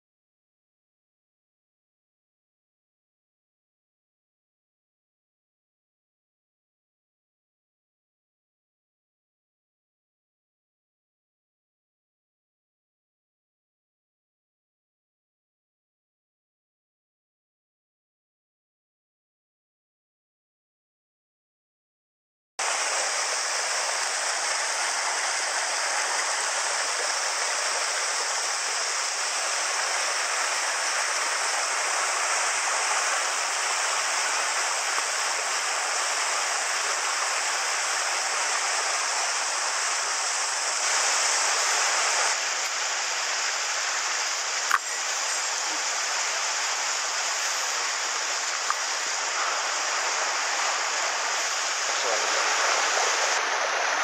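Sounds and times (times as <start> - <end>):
stream rushing over boulders: 22.6 - 54.0
sharp click: 44.7 - 44.9.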